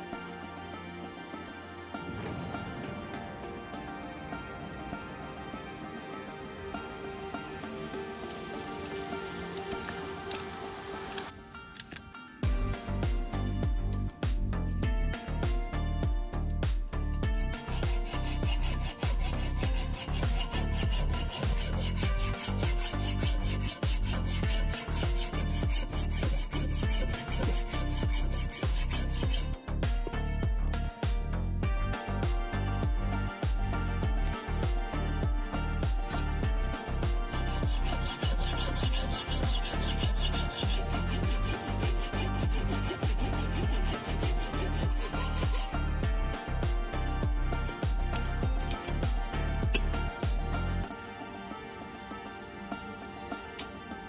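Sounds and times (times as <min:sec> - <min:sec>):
hacksaw sawing through metal: 0:08.3 - 0:11.3, 0:17.6 - 0:29.6, 0:36.1 - 0:36.3, 0:37.2 - 0:45.8.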